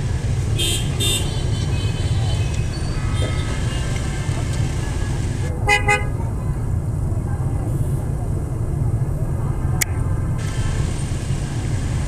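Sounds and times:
street traffic rumble: 0.0s - 12.0s
motorbike horn beeping: 0.6s - 2.2s.

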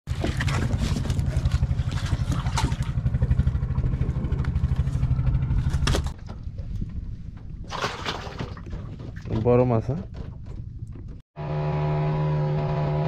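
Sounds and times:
boat engine throbbing: 0.1s - 6.6s, 11.4s - 13.0s.

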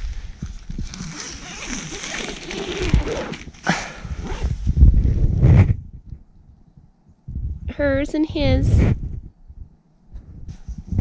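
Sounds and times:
nylon fabric rustling: 0.0s - 4.8s
tent zipper pulled open: 0.6s - 5.8s.

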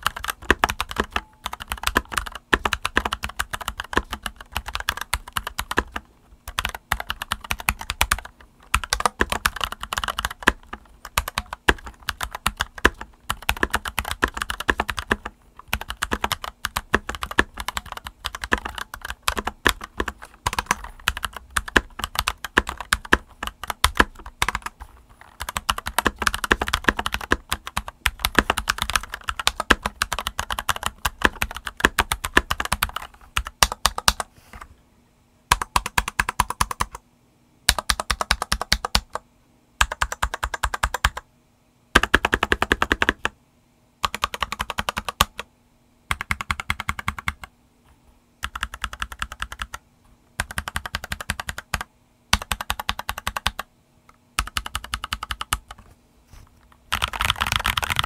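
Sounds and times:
mechanical keyboard typing: 0.0s - 34.3s, 35.5s - 37.0s, 37.7s - 39.2s, 39.8s - 41.2s, 42.0s - 43.3s, 44.0s - 45.5s, 46.1s - 47.5s, 48.4s - 49.8s, 50.4s - 53.7s, 54.4s - 55.8s, 56.9s - 58.0s.

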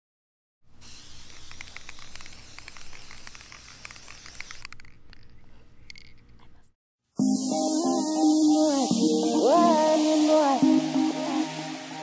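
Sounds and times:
spray paint can hissing: 0.8s - 5.0s.

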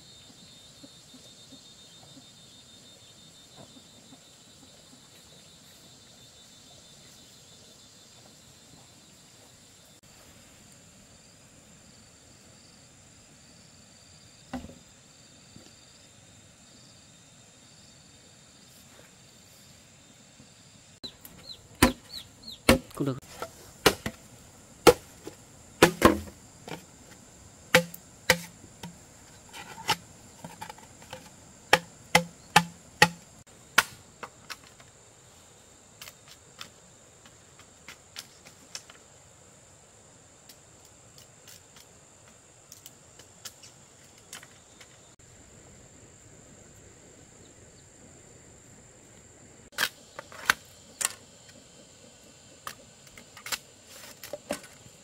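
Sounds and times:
sharp knocks: 27.7s - 29.0s, 31.7s - 33.2s.

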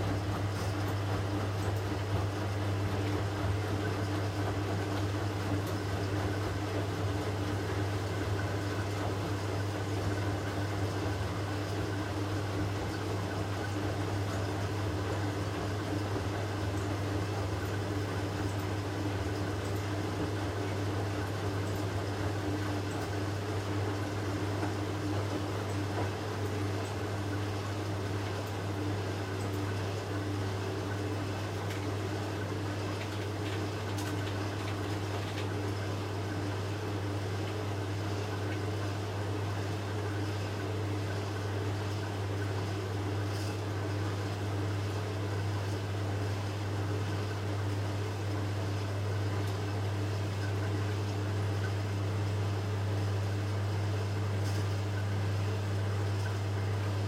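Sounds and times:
washing machine hum: 0.0s - 57.0s
water swishing in drum: 0.0s - 57.0s.

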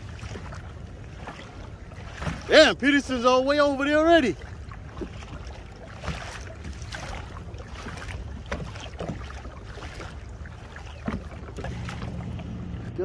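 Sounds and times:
water slapping kayak hull: 0.0s - 13.0s.

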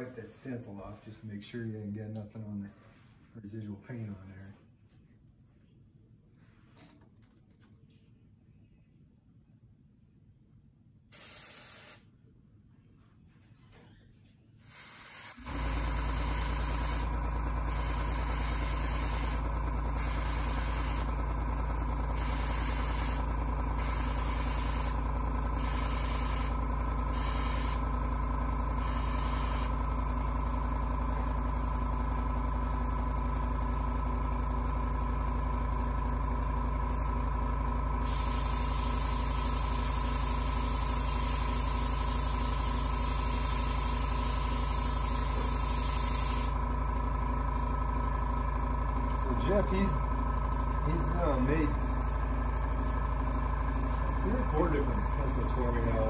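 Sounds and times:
airbrush hissing: 11.1s - 12.0s, 14.6s - 19.4s, 20.0s - 21.1s, 22.2s - 25.0s, 25.6s - 27.8s, 28.8s - 29.7s, 38.0s - 46.5s
electric motor humming: 15.3s - 28.1s, 38.0s - 46.7s.

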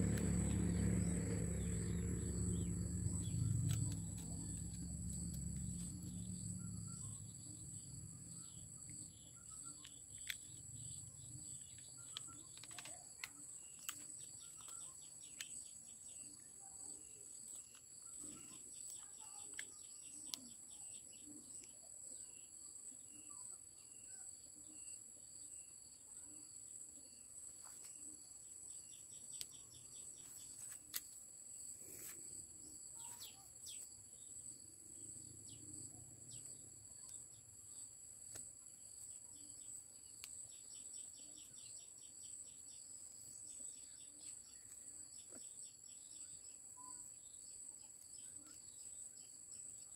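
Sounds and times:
bird chirps: 32.9s - 34.3s.

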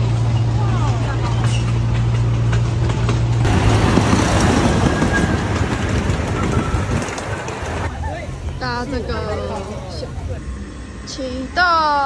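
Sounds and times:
train cars rumbling on rails: 0.0s - 12.0s.

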